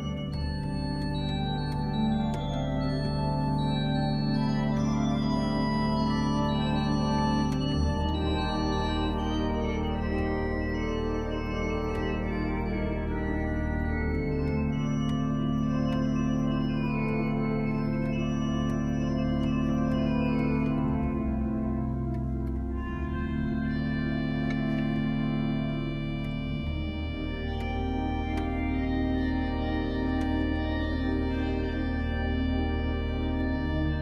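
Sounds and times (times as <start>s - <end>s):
pipe organ chords: 0.0s - 34.0s.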